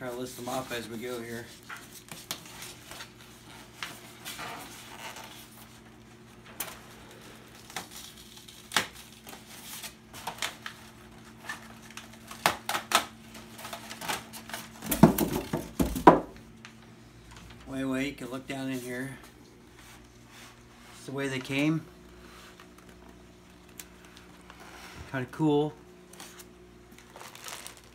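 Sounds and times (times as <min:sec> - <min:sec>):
faint steady hum: 0:00.0 - 0:27.9
paper rustling: 0:26.1 - 0:27.9.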